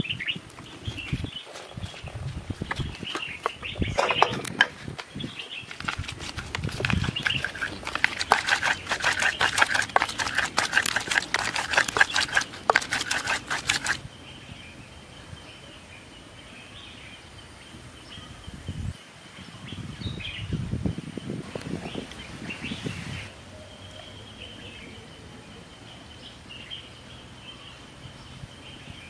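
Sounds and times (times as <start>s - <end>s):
rapid sharp clicks and scrapes: 0.6s - 14.0s.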